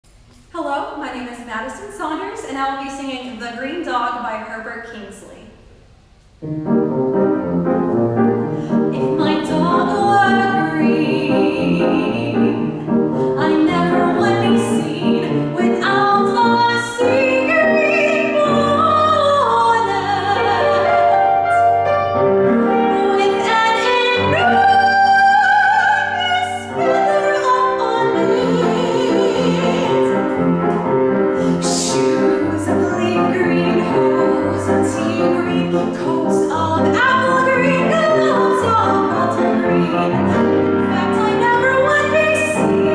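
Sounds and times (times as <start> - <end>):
piano accompaniment: 6.4 - 42.9
woman singing classically: 8.9 - 12.7, 13.4 - 21.3, 23.0 - 30.1, 31.6 - 42.9.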